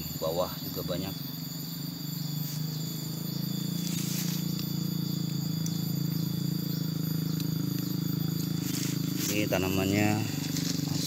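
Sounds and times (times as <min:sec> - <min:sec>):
high-pitched insect buzzing: 0:00.0 - 0:11.0
low drone: 0:00.0 - 0:11.0
foliage rustling: 0:02.4 - 0:05.9, 0:07.8 - 0:11.0.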